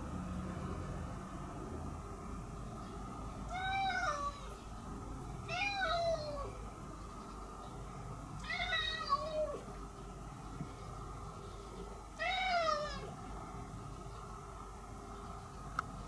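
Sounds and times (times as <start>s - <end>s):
cat meowing: 3.5s - 4.6s, 5.4s - 6.6s, 8.4s - 9.7s, 12.2s - 13.1s.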